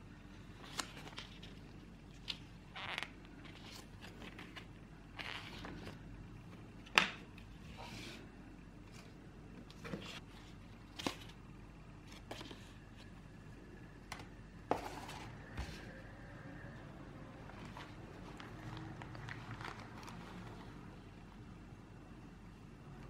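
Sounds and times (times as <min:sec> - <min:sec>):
paper rustling and sliding: 0:14.7 - 0:15.9, 0:17.5 - 0:20.8.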